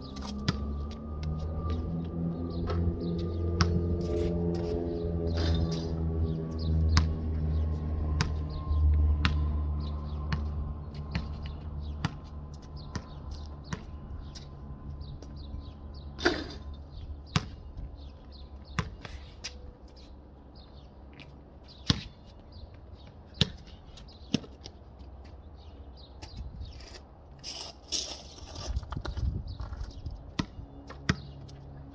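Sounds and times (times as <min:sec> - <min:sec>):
birds chirping: 0:00.0 - 0:27.2, 0:28.5 - 0:31.9
basketball bouncing on concrete: 0:00.2 - 0:01.9, 0:02.6 - 0:03.9, 0:06.9 - 0:14.5, 0:17.2 - 0:19.1, 0:21.8 - 0:22.4, 0:23.4 - 0:23.7, 0:30.2 - 0:31.5.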